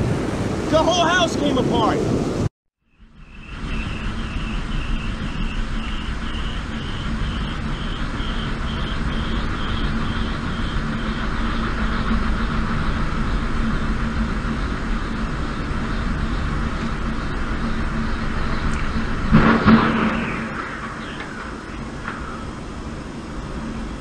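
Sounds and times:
rushing wind: 0.0s - 24.0s
wind turbine drone: 0.0s - 24.0s
pulsing high whine: 1.8s - 24.0s.

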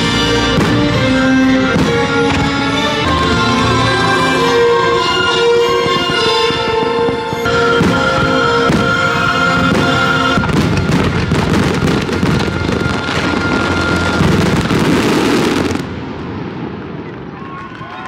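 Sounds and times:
rapid overlapping firework bangs: 0.0s - 3.0s, 5.5s - 17.2s
orchestral show music: 0.0s - 15.8s
fireworks shells bursting: 5.5s - 16.1s
fireworks crackle: 5.6s - 18.0s.

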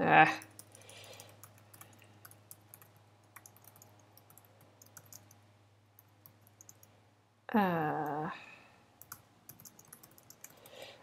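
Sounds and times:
keyboard typing: 0.4s - 5.4s, 6.0s - 6.9s, 9.0s - 10.8s.

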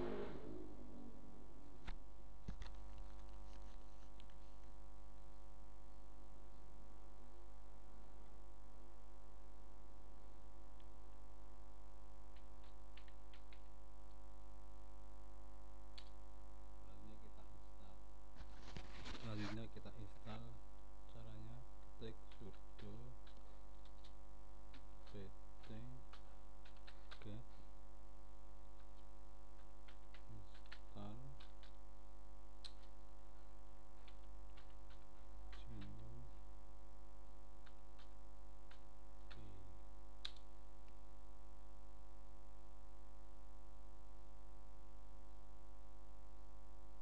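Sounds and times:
low murmur: 0.0s - 1.9s, 19.1s - 23.2s
electrical hum: 0.0s - 47.0s.

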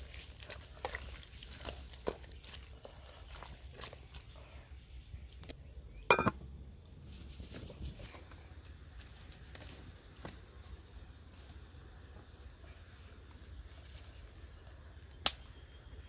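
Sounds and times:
firewood sticks knocking: 6.1s - 6.4s
metal lid clanking onto pot: 6.1s - 6.4s.

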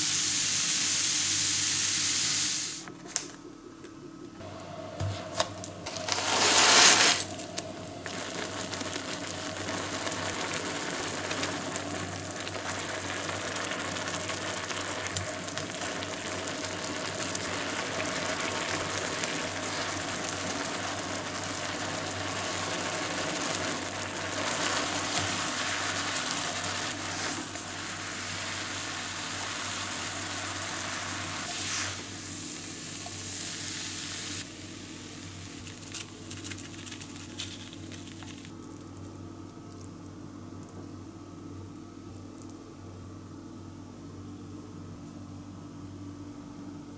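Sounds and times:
noodles sizzling in a frying pan: 0.0s - 2.8s, 5.2s - 40.1s.

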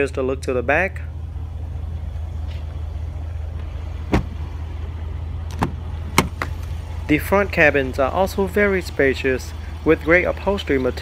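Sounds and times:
steady low hum: 0.0s - 10.8s
car door shutting: 3.5s - 4.6s, 5.5s - 6.7s.

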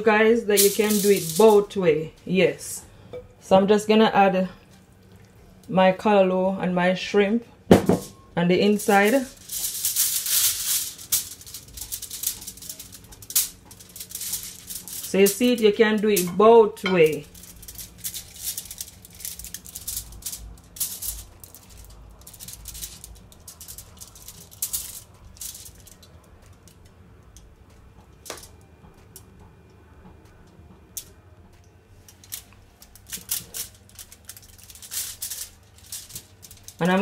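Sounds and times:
aluminium foil crinkling: 0.1s - 1.8s, 8.6s - 27.5s, 32.0s - 37.0s.

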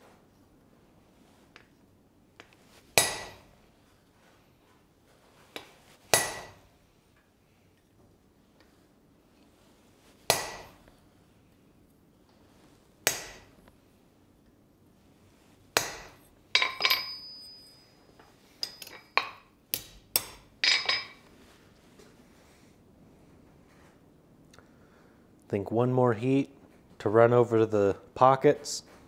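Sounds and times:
hammer striking metal punch: 3.0s - 3.4s, 6.1s - 6.6s, 10.3s - 10.8s, 13.0s - 13.5s, 15.8s - 17.5s.

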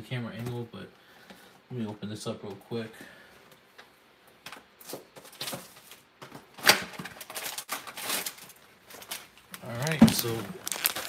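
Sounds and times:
plastic wrapping tearing and crinkling: 4.8s - 11.0s.

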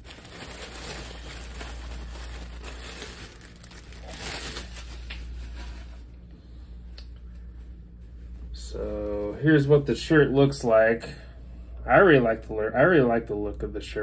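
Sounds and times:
plastic wrapping crinkling: 0.0s - 6.2s.

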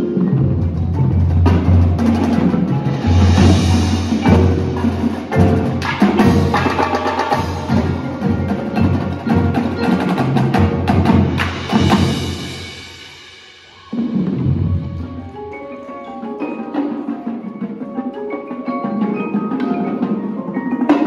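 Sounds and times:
marching drums: 0.0s - 15.5s
marimbas and vibraphones: 0.0s - 21.0s.

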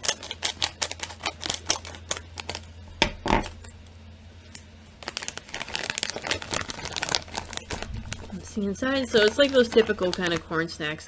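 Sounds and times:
scissors snipping plastic bag: 0.0s - 2.7s, 9.0s - 10.7s
plastic bag crinkling: 0.0s - 2.8s, 5.0s - 11.0s.

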